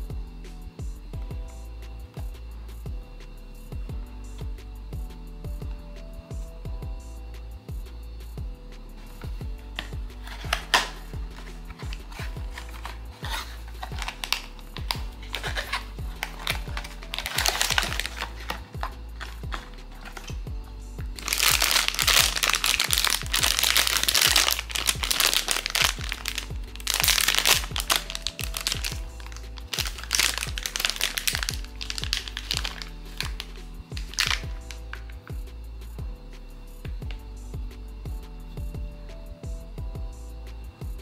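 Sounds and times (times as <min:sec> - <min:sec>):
background music with steady beat: 0:00.0 - 0:41.0
foil pouch crinkling: 0:09.8 - 0:35.1.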